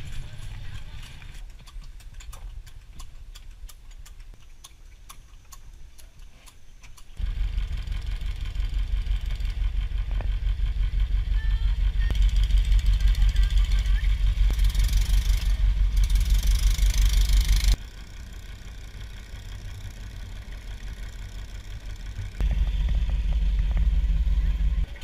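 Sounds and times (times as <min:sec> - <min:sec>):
boat engine throbbing: 0:07.2 - 0:25.0
bicycle freewheel clicking: 0:12.0 - 0:22.4.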